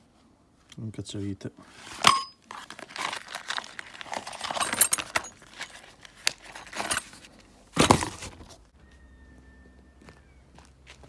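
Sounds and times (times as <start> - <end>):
cardboard scrape: 1.6 - 8.6
pouch rustling: 1.7 - 8.6
metal tools clinking in pouch: 1.8 - 7.5.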